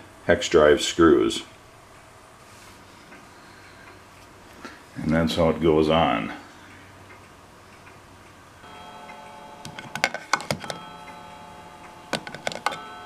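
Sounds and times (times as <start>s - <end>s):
chime-like ringing tone: 8.6s - 13.0s
plastic clicks and knocks: 9.7s - 10.8s, 12.1s - 12.8s.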